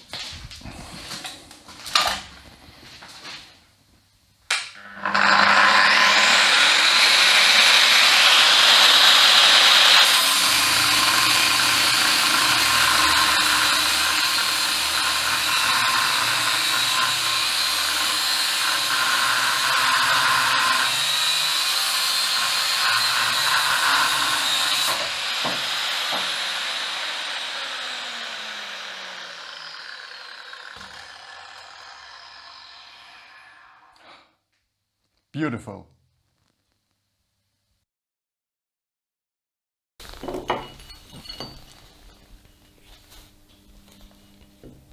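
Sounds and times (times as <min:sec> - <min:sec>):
angle grinder grinding metal: 0:04.7 - 0:34.2
grinder spinning down whine: 0:04.8 - 0:34.0.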